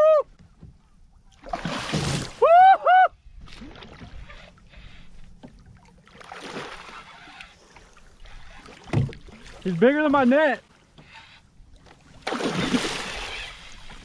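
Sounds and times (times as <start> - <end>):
fish splashing at the surface: 1.4 - 2.4, 12.2 - 14.0.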